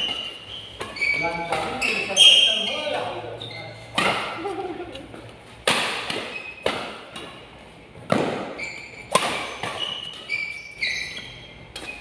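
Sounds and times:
court shoes squeaking: 0.0s - 12.0s
rackets hitting shuttlecock: 3.9s - 10.5s, 11.1s - 12.0s.

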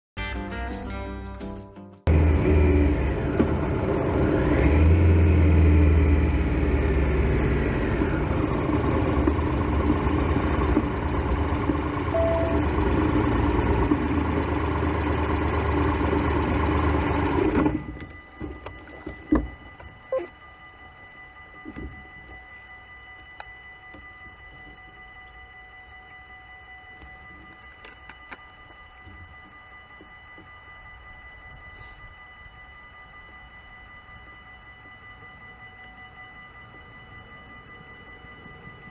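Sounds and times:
motorcycle engine running: 2.1s - 18.0s
level crossing warning bells: 5.8s - 38.9s.

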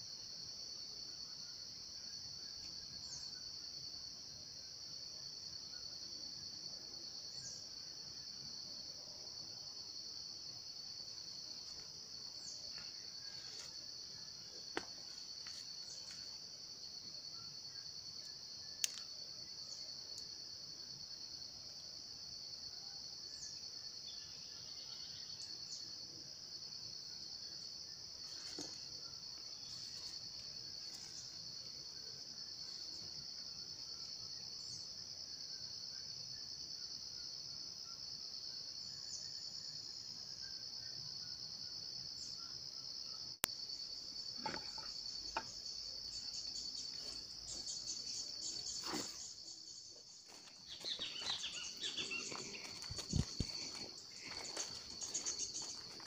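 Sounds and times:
insects trilling: 0.0s - 56.0s
footsteps on leafy trail: 46.9s - 56.0s.

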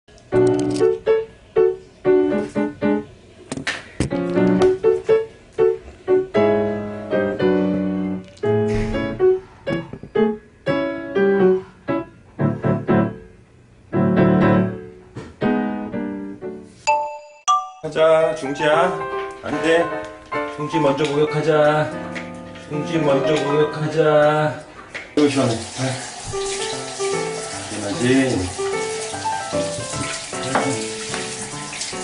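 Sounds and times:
light piano tune: 0.2s - 3.2s, 4.0s - 32.0s.

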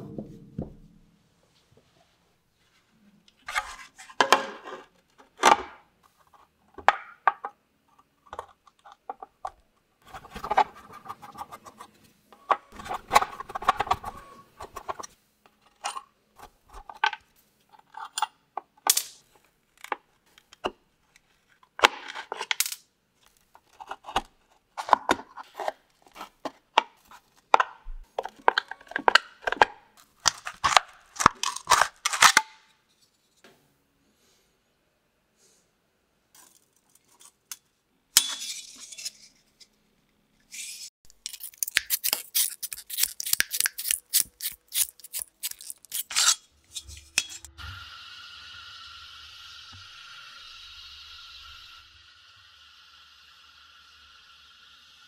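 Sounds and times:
nippers scraping and clicking: 41.1s - 47.5s.

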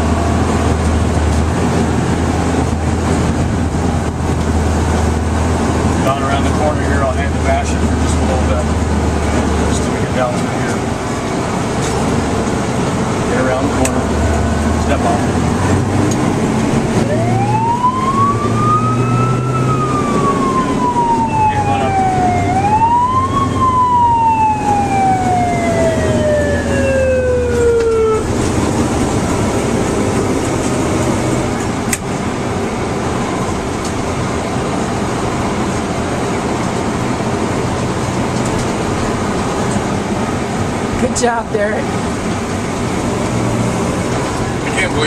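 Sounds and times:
fire engine siren wailing: 0.0s - 31.9s
truck engine running: 0.0s - 45.0s.

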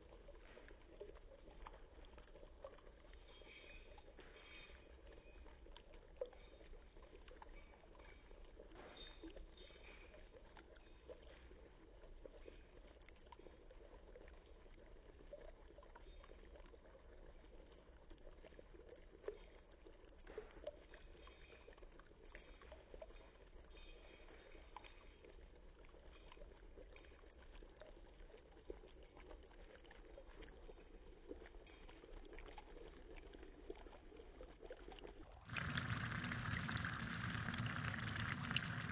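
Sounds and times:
dry ice bubbling in liquid: 0.0s - 38.9s
low steady hum: 30.2s - 38.9s.

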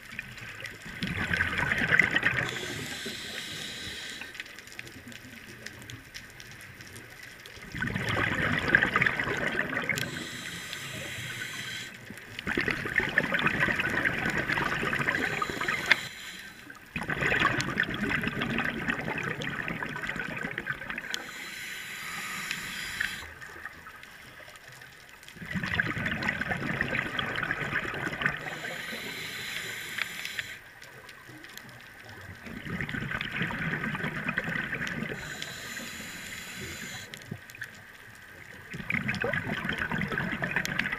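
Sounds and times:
bubbly underwater exhalations: 0.9s - 4.3s, 7.6s - 16.3s, 16.9s - 23.6s, 25.4s - 30.4s, 32.4s - 37.1s, 38.8s - 40.9s
regulator inhalation hiss: 2.1s - 4.7s, 9.4s - 12.3s, 14.6s - 16.8s, 21.0s - 23.4s, 28.4s - 30.7s, 35.1s - 37.2s.

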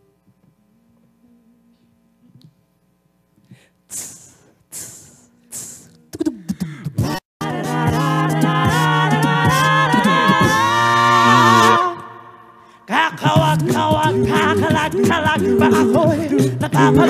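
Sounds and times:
breathy mouth sounds: 3.4s - 7.2s
vocal group singing harmony: 6.9s - 17.0s
sung bass line: 13.2s - 17.0s.

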